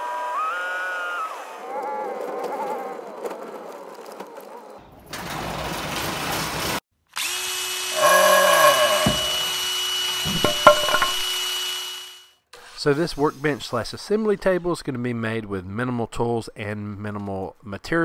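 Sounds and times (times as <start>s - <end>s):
roll-up garage door rattling: 5.1s - 6.8s
sharp knocks: 8.0s - 9.5s, 10.3s - 11.3s.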